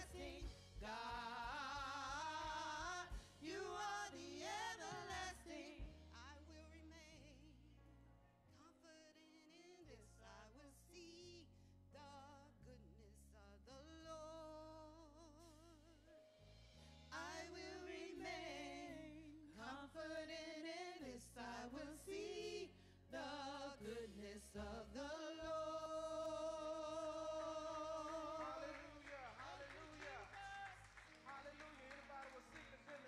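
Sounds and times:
women singing gospel: 0:00.0 - 0:06.3, 0:17.1 - 0:29.0.

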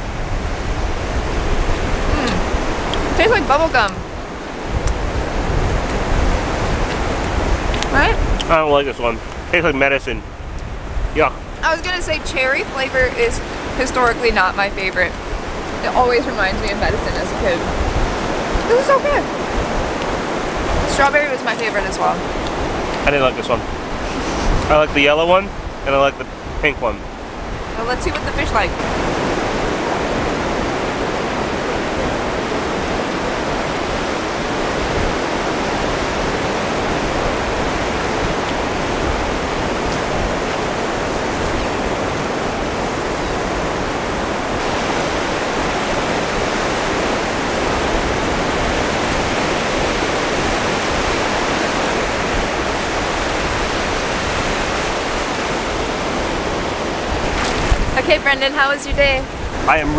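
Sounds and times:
ocean surf breaking: 0:00.0 - 0:59.9.

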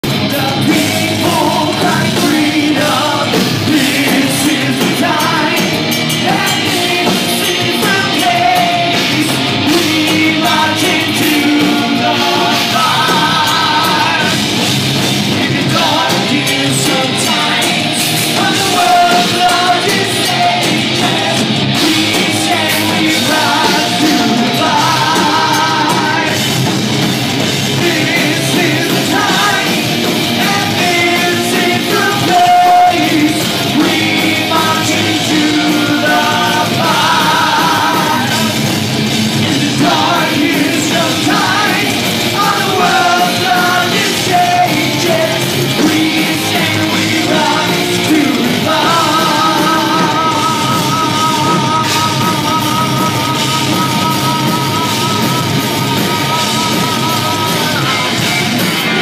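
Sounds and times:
drum kit: 0:00.0 - 0:59.0
electric guitar: 0:00.0 - 0:59.0
lead vocals singing: 0:00.0 - 0:59.0.

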